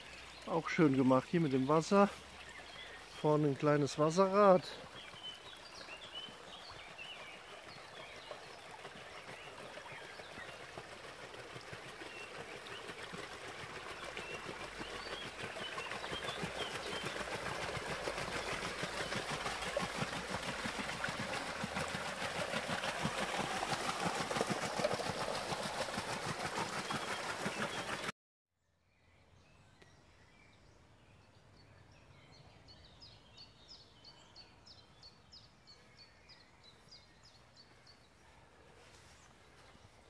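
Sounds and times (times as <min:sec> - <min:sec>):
water rushing through water wheel: 0:00.0 - 0:28.1.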